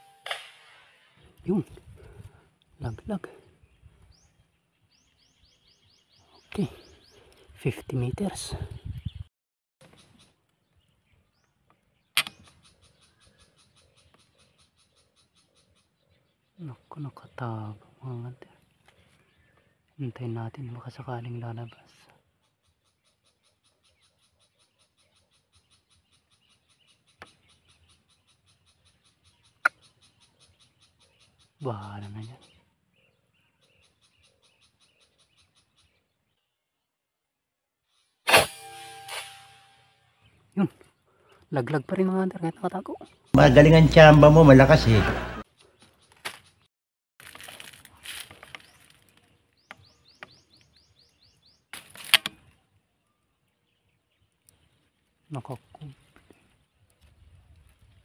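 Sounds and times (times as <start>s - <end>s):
faint pulsing animal chorus: 43.4s - 45.4s
rustling handling noise: 47.2s - 49.4s.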